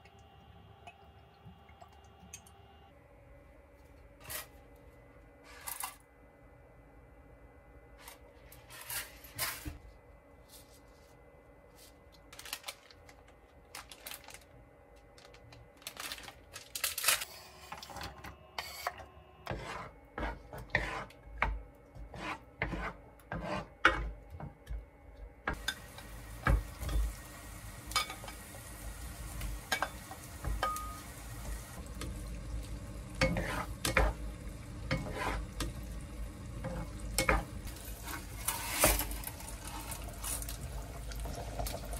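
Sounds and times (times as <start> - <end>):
wooden spatula scraping frying pan: 19.5 - 21.2, 22.0 - 24.2, 33.2 - 34.2, 34.9 - 35.7, 36.6 - 40.4
sizzle of frying: 25.5 - 41.9.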